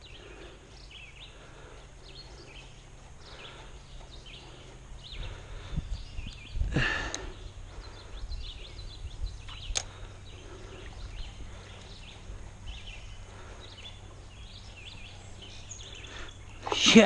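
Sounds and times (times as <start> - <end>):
birds chirping: 0.0 - 17.0
sharp click: 9.7 - 9.9.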